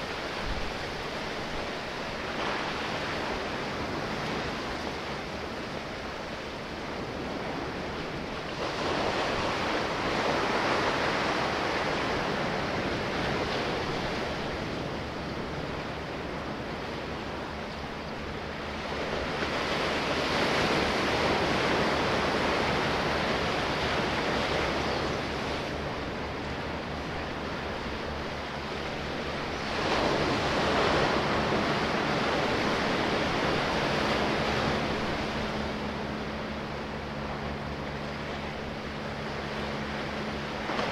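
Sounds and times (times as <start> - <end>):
sea waves washing in: 0.0 - 40.9.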